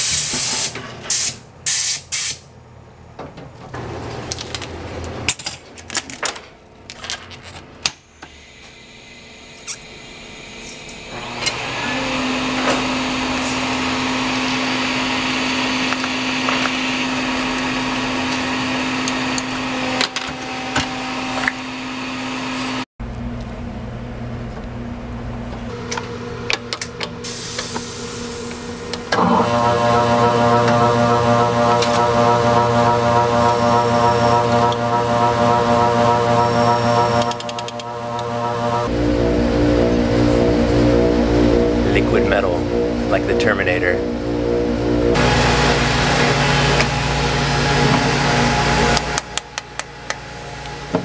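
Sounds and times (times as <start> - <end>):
machine humming and hissing: 8.2 - 22.8, 25.7 - 51.0
quieter machine hum: 8.6 - 51.0.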